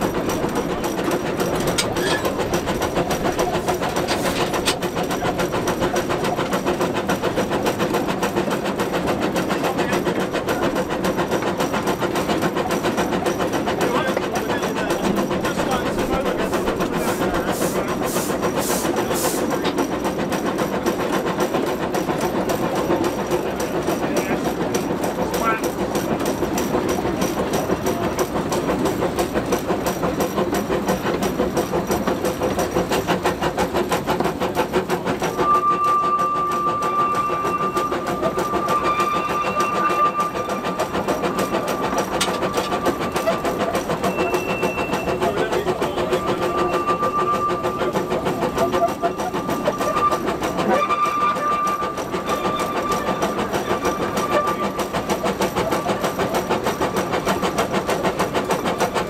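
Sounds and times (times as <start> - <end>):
steam locomotive exhaust beats: 0.0 - 59.0
steady high tone: 35.4 - 54.9.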